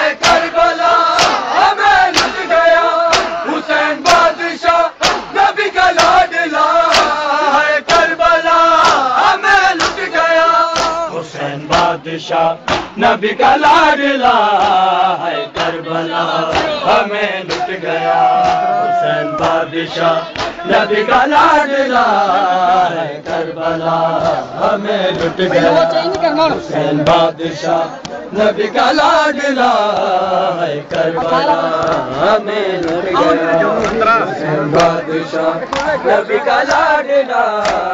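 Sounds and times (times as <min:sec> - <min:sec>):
crowd of men chanting: 0:00.0 - 0:37.9
chest-beating slaps: 0:00.2 - 0:02.5, 0:03.1 - 0:04.4, 0:05.0 - 0:06.3, 0:06.9 - 0:07.2, 0:08.8 - 0:11.1, 0:11.7 - 0:12.0, 0:12.6 - 0:13.0, 0:16.5 - 0:16.8, 0:17.5 - 0:17.8, 0:18.4 - 0:19.7, 0:20.3 - 0:20.6, 0:25.1 - 0:25.4, 0:33.8 - 0:34.1, 0:34.7 - 0:35.0, 0:35.6 - 0:36.0, 0:37.6 - 0:37.9.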